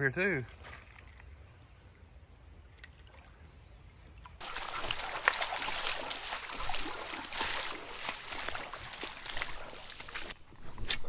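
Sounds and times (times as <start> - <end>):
creek water trickling over stones: 2.5 - 11.0.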